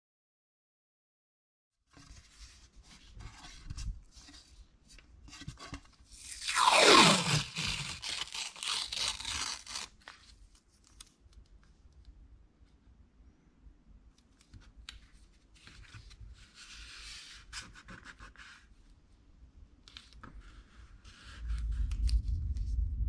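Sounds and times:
tape screeching off the roll: 0:06.2 - 0:09.9
tape strip tearing: 0:06.2 - 0:10.2
tape crackling and crinkling: 0:06.2 - 0:11.5.

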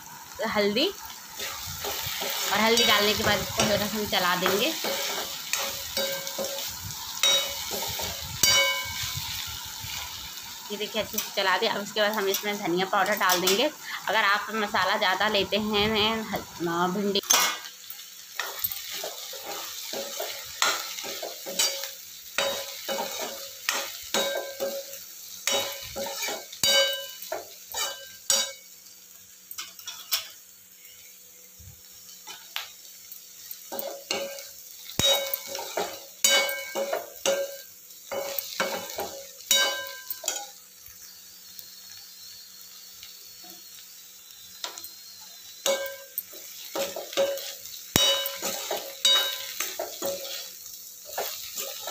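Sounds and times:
frying sizzle: 0:00.0 - 0:51.9
metal spatula scraping pan: 0:46.8 - 0:51.9.

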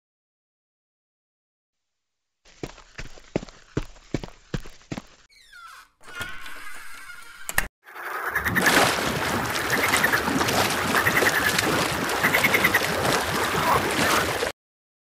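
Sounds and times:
steady wash of water: 0:08.6 - 0:14.5
frogs croaking: 0:09.4 - 0:13.8.

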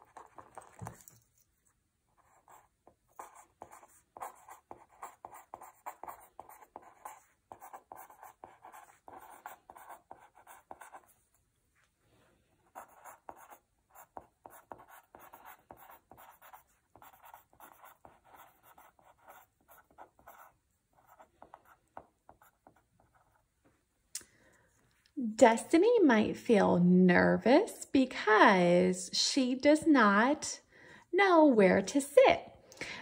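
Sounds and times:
pen writing on paper: 0:00.0 - 0:01.0, 0:02.2 - 0:11.2, 0:12.6 - 0:23.4.

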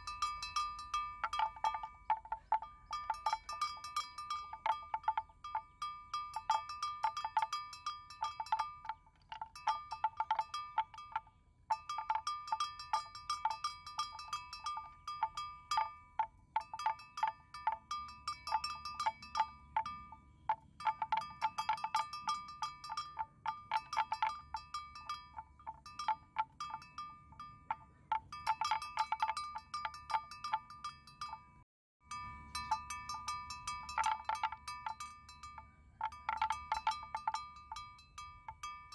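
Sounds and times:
metal animal bell clanking: 0:00.0 - 0:38.9.

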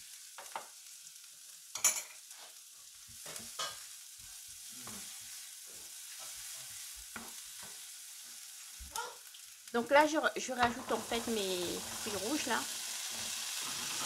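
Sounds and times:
shallots sizzling in butter: 0:00.0 - 0:14.0
wooden spoon scraping a pan: 0:02.1 - 0:08.3, 0:10.6 - 0:14.0.

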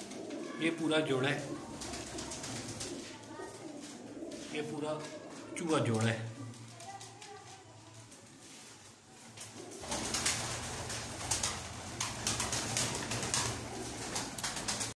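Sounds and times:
pigeons cooing: 0:00.0 - 0:07.2, 0:08.4 - 0:14.9
rustling clicking noise: 0:11.4 - 0:14.9.

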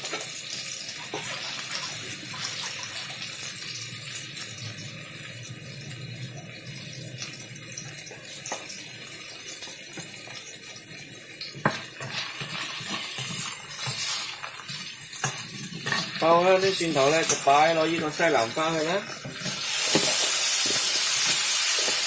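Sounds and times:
food sizzling in oil: 0:00.0 - 0:22.0
spatula stirring in a wok: 0:01.0 - 0:03.7, 0:11.6 - 0:22.0.

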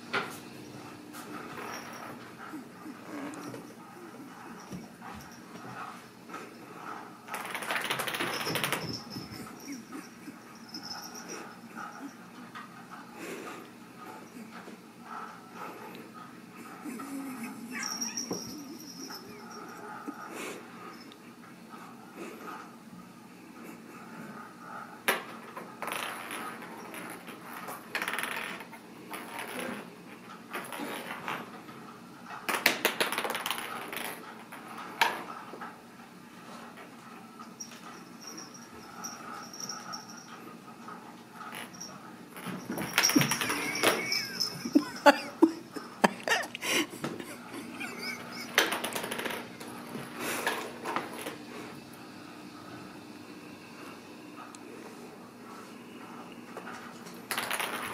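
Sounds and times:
toy ball rolling on wooden floor: 0:01.3 - 0:12.7, 0:17.4 - 0:20.3, 0:25.1 - 0:31.6, 0:32.3 - 0:35.6, 0:37.5 - 0:51.4, 0:56.6 - 0:57.9
clattering rattle: 0:07.3 - 0:11.4, 0:41.6 - 0:45.1.

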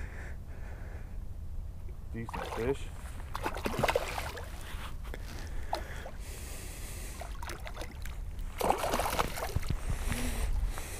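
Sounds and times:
water lapping around boat: 0:02.2 - 0:10.9
water splashing: 0:02.3 - 0:04.7, 0:07.2 - 0:09.7
wind rumble on microphone: 0:08.1 - 0:10.9.

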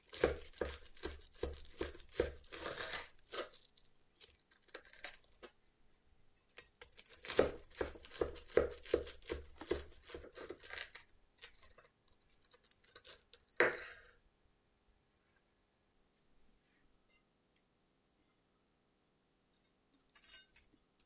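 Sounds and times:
knife sawing through crispy crust: 0:00.0 - 0:03.6.

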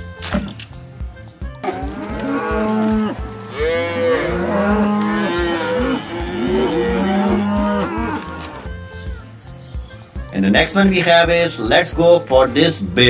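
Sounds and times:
cattle mooing: 0:01.6 - 0:08.7.

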